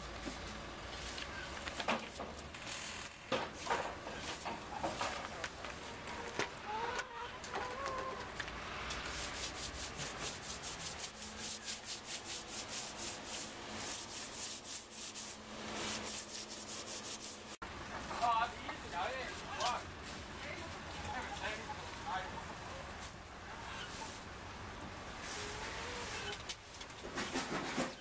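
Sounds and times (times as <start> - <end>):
scraping strokes: 8.9 - 17.6.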